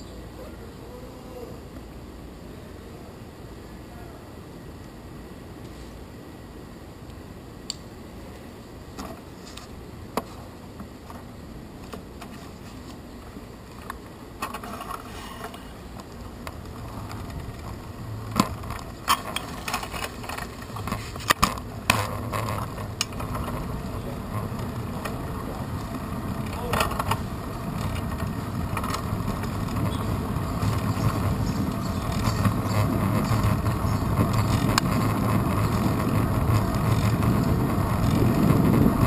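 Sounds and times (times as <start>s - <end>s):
bicycle rattling and ticking: 16.1s - 39.0s.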